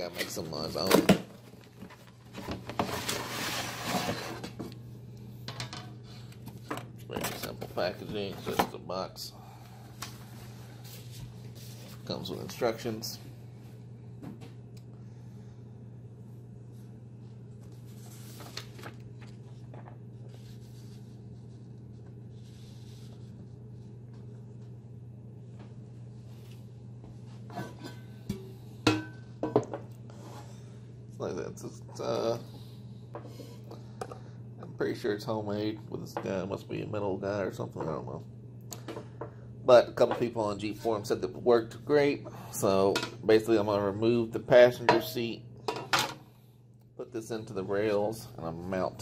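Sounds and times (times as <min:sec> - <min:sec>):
steady low hum: 0:00.0 - 0:49.0
cardboard rustling and scraping: 0:01.7 - 0:04.6, 0:17.8 - 0:19.4
paper rustling and crinkling: 0:17.6 - 0:21.6.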